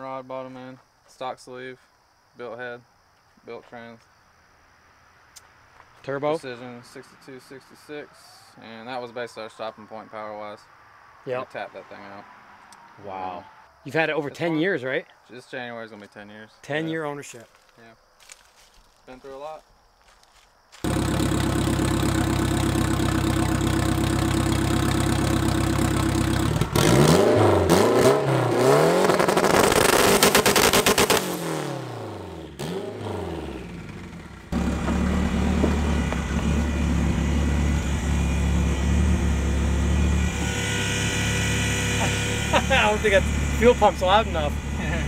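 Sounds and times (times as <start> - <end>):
car engine idling and revving: 20.8 - 45.0.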